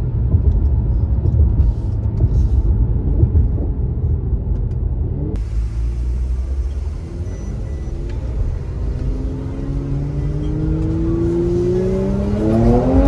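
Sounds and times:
car engine pulling away: 0:04.6 - 0:13.0.

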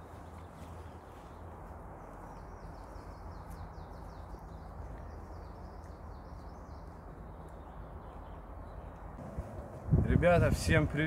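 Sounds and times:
songbird singing: 0:00.0 - 0:11.0.

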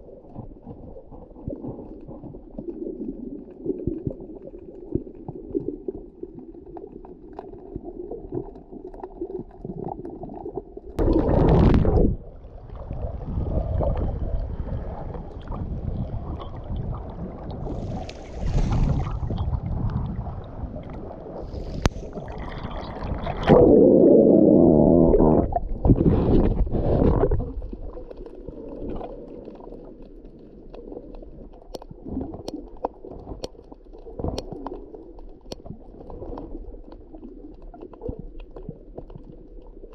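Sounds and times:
muffled underwater gurgling: 0:00.0 - 0:39.9
water splashing: 0:11.0 - 0:29.8.

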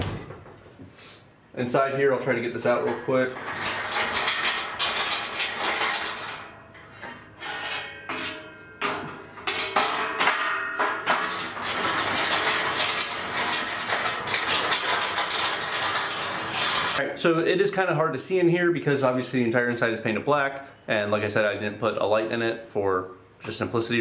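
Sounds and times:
metal clanks and scrapes: 0:02.6 - 0:17.0.

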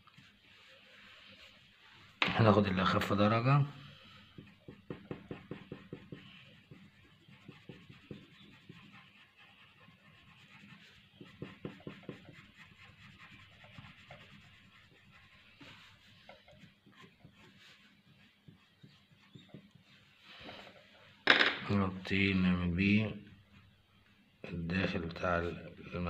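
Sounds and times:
pencil shading on paper: 0:04.1 - 0:20.2.

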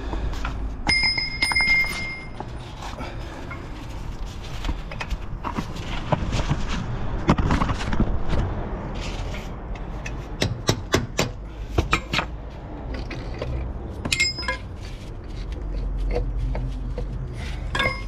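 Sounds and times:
ringing metallic clink: 0:00.9 - 0:02.4, 0:14.1 - 0:14.6.

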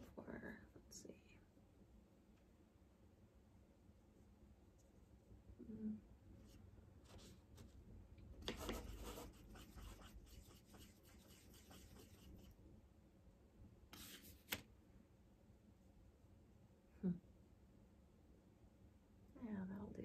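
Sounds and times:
paintbrush rubbing in paint pan: 0:08.4 - 0:12.6.

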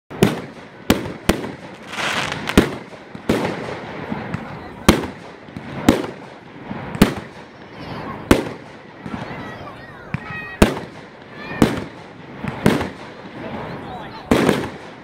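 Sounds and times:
firework shells bursting: 0:00.2 - 0:06.2
firework hiss: 0:00.3 - 0:09.4.

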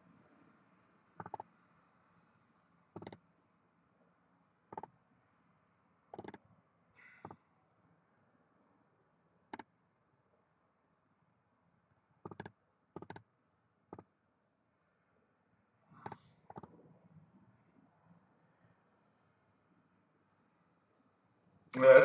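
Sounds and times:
computer mouse clicks: 0:01.2 - 0:01.5, 0:03.0 - 0:03.2, 0:06.1 - 0:06.4, 0:12.3 - 0:13.2.

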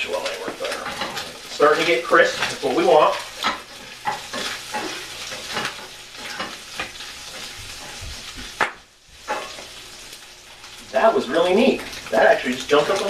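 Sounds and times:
meat sizzling and popping: 0:00.0 - 0:13.0
spatula scraping pan: 0:00.3 - 0:08.6, 0:09.2 - 0:10.1.

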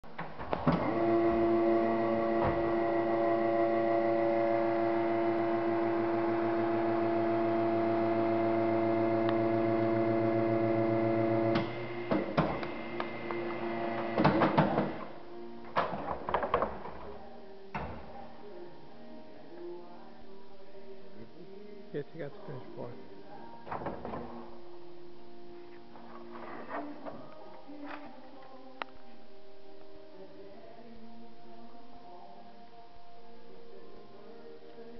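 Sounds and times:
vacuum pump humming: 0:00.8 - 0:15.0.

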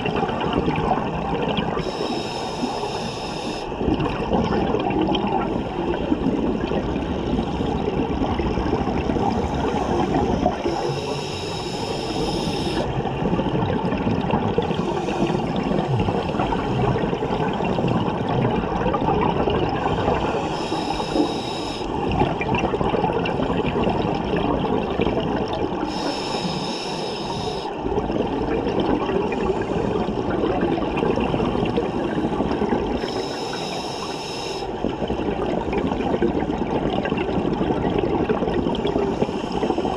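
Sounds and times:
gurgling exhaled bubbles: 0:00.0 - 0:39.9
regulator hissing inhale: 0:01.8 - 0:03.8, 0:09.5 - 0:12.9, 0:14.6 - 0:17.9, 0:19.8 - 0:22.0, 0:25.8 - 0:27.8, 0:33.0 - 0:34.8, 0:39.1 - 0:39.9.

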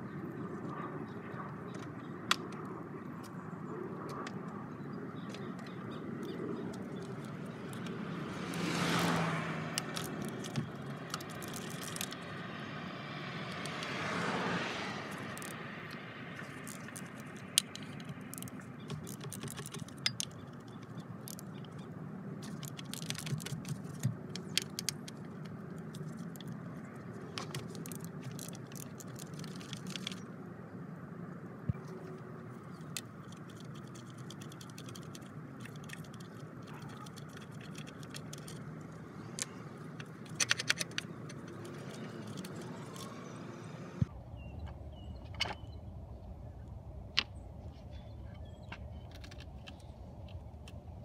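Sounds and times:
hand tools clicking and tapping: 0:05.3 - 0:12.3, 0:15.1 - 0:21.8, 0:22.4 - 0:26.6, 0:32.8 - 0:43.2.

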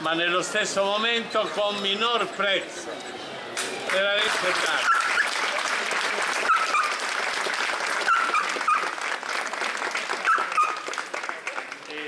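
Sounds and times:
crowd applauding: 0:03.9 - 0:12.0
high-pitched yelps: 0:06.4 - 0:07.0.

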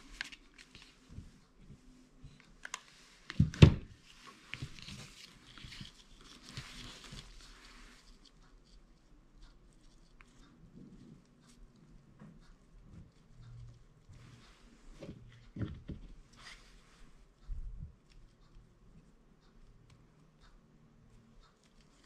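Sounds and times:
ribbon rustling: 0:00.0 - 0:08.8.

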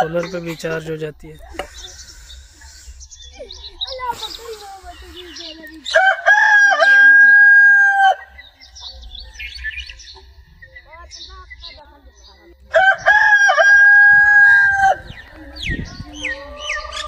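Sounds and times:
birds chirping: 0:00.0 - 0:17.0
rooster crowing: 0:05.9 - 0:08.4, 0:12.7 - 0:15.2.

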